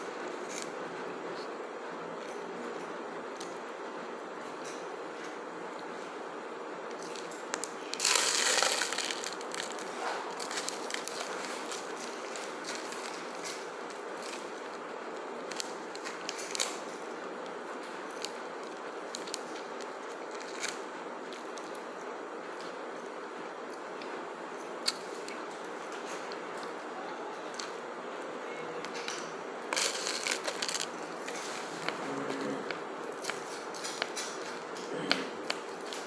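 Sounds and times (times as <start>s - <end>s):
steady background hiss: 0.0s - 36.0s
foil tray crinkling: 7.0s - 22.0s, 28.8s - 36.0s.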